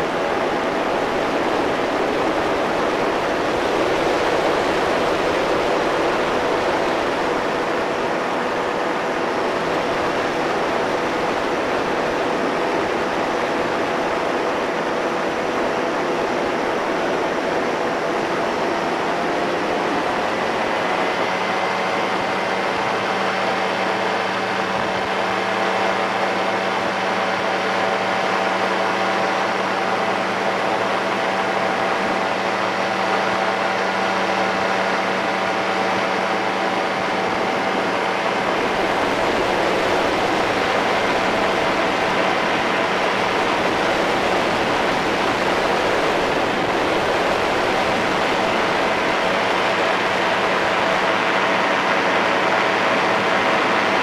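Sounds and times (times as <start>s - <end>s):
engine and propeller running: 0.0s - 54.0s
wind on microphone: 34.5s - 54.0s.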